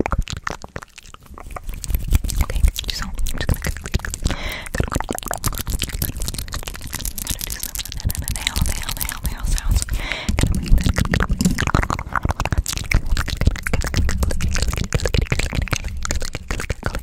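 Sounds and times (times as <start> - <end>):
wet mouth clicks and pops: 0.0 - 17.0
hands rubbing and tapping microphone: 5.3 - 17.0.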